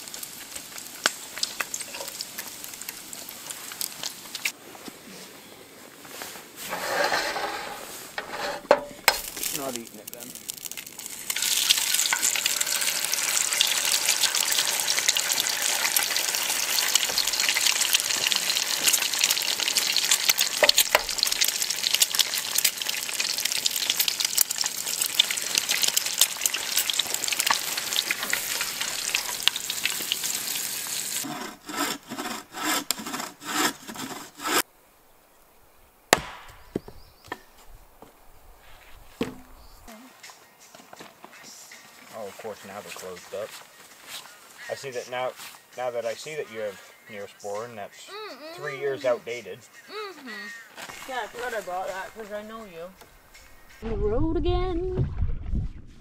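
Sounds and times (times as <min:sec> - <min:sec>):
eggs sizzling in a skillet: 0:00.0 - 0:04.6, 0:06.6 - 0:31.3, 0:50.6 - 0:53.8
sharp knock: 0:36.1 - 0:36.9.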